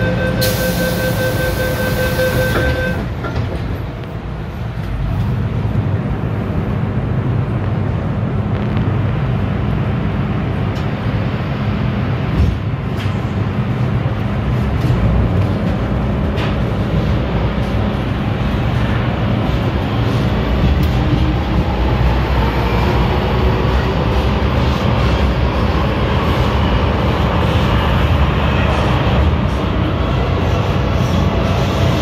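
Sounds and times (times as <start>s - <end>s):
two-pitch door warning tone: 0.0s - 3.1s
train rumbling on track: 0.0s - 32.0s.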